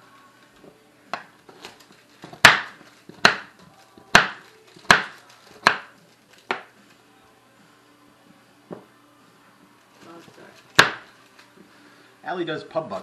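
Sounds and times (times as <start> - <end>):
knife chopping on stone countertop: 2.3 - 3.5, 4.1 - 5.9, 6.5 - 6.7, 10.8 - 11.1.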